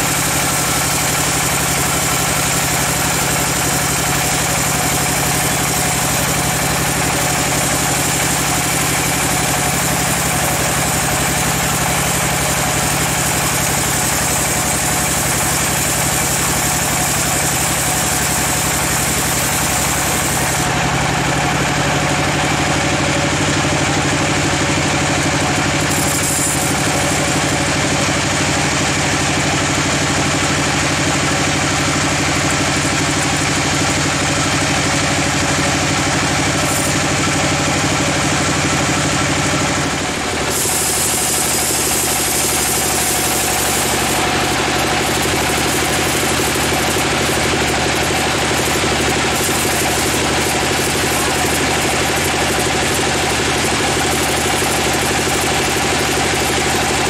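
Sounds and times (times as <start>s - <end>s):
band saw blade hissing through log: 0.0s - 20.9s, 25.1s - 28.4s, 35.2s - 54.6s
saw machine hum: 0.0s - 57.0s.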